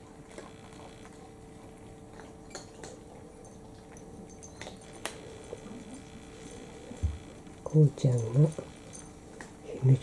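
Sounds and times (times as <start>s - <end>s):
cats chewing: 0.0s - 9.8s
faint steady hum: 0.0s - 10.0s
teeth clicking on ceramic bowls: 2.1s - 9.6s.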